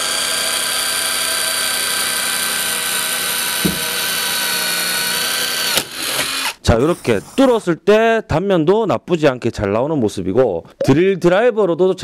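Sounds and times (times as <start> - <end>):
impact driver motor whine: 0.0 - 6.6
low knock: 3.6 - 3.9.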